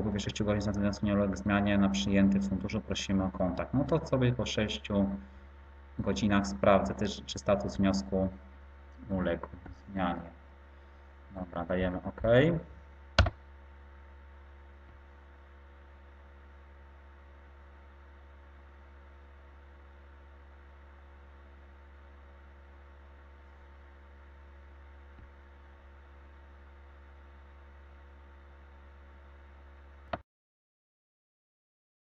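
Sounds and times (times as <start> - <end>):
faint steady tones: 0.0 - 11.2
low electrical hum: 0.0 - 30.2.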